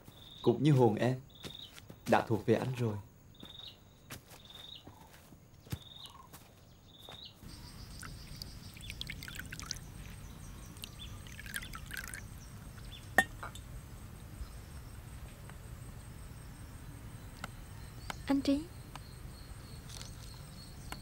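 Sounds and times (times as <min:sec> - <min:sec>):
crickets chirping: 0:00.0 - 0:21.0
tea pouring into cup: 0:07.5 - 0:13.6
ceramic clink: 0:13.2 - 0:13.6.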